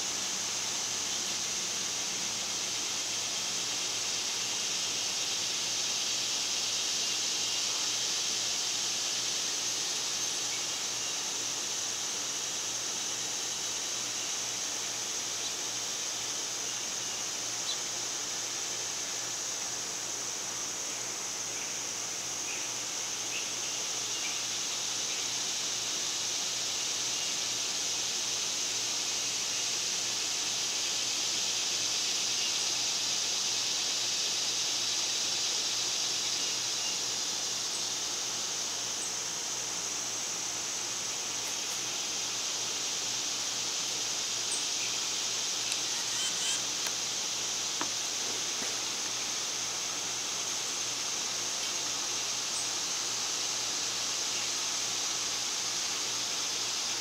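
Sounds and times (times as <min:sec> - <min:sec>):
insect chorus drone: 0:00.0 - 0:57.0
faint bird chirps: 0:45.6 - 0:46.8.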